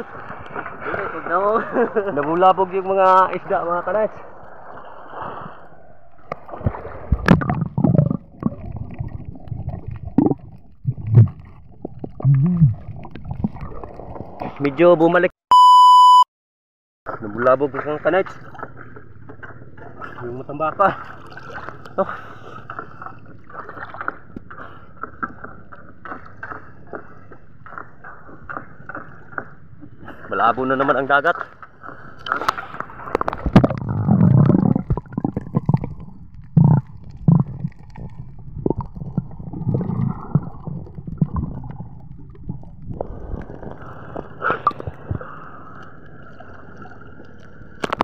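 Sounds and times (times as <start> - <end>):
underwater gurgling water: 0.0 - 14.9, 17.1 - 48.0
bubbles: 4.4 - 14.6, 32.9 - 48.0.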